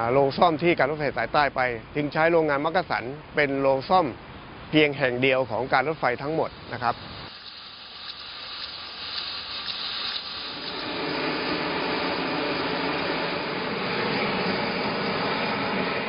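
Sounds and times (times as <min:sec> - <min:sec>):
gas flame hissing: 0:04.6 - 0:16.0.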